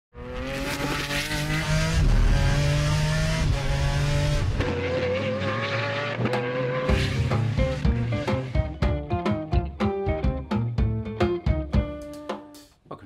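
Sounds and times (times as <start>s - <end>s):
race car engine at high revs: 0.2s - 8.6s.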